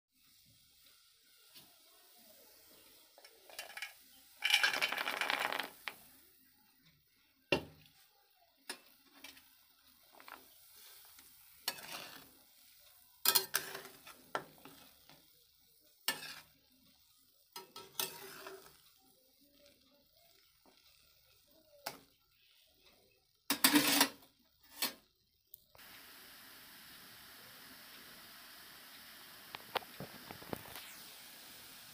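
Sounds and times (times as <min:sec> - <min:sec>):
food sizzling in hot oil: 0:00.1 - 0:06.5, 0:07.1 - 0:22.9, 0:23.5 - 0:25.1, 0:25.7 - 0:31.9
metal spatula scraping a pan: 0:02.6 - 0:04.9, 0:10.1 - 0:15.2, 0:16.0 - 0:19.0, 0:23.5 - 0:25.0.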